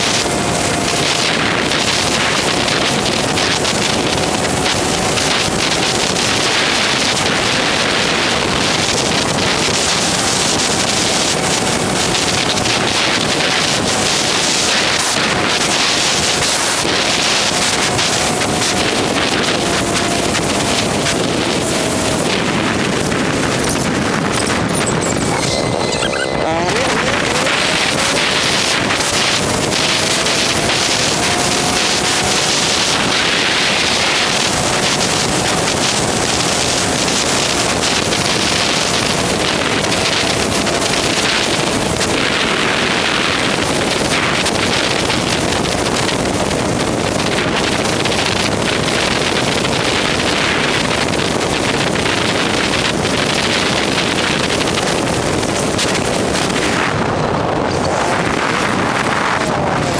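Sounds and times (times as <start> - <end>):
wind rushing over microphone: 0.0 - 59.9
faint rising tone: 24.4 - 28.1.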